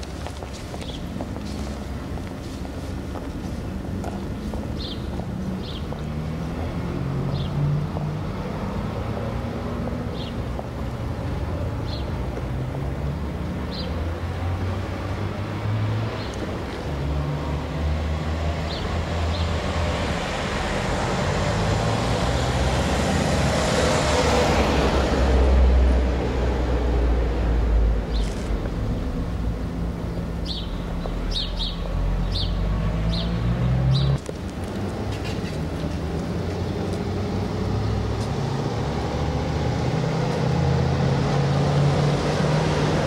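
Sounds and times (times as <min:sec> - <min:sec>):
car passing: 0:00.0 - 0:43.0
low traffic rumble: 0:00.0 - 0:43.0.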